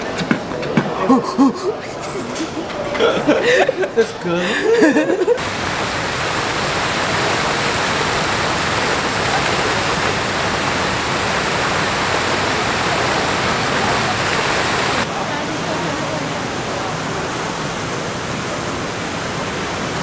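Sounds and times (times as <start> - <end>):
fountain water splashing into pool: 5.3 - 20.0.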